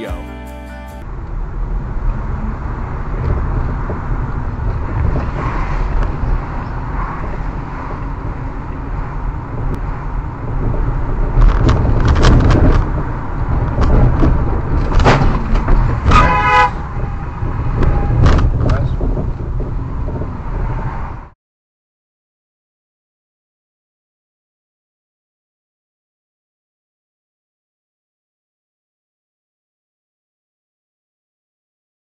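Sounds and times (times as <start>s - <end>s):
brief pitched sound: 0.0s - 1.0s
car road and engine rumble: 1.0s - 21.4s.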